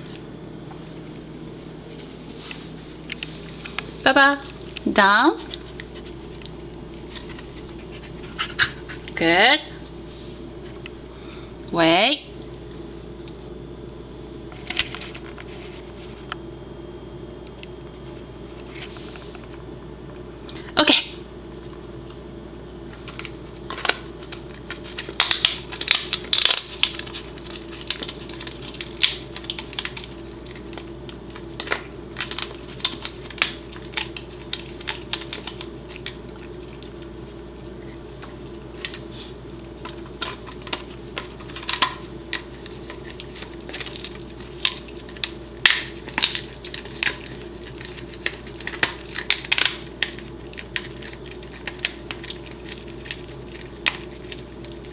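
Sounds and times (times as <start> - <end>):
dog chewing crunchy chew: 2.3 - 9.2, 22.8 - 54.9.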